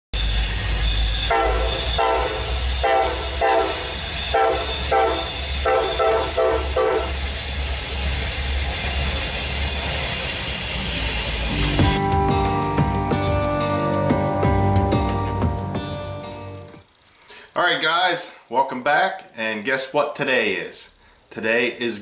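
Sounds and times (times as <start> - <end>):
high-pitched squeal: 0.2 - 12.0
locomotive horn blasts: 1.3 - 7.2.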